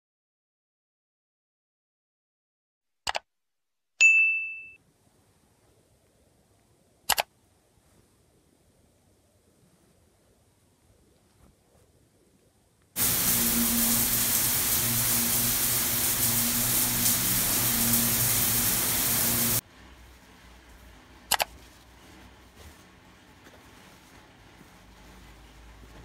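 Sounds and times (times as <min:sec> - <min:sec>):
low hum: 0:13.0 - 0:19.6
shower spraying on tiles: 0:13.0 - 0:21.0.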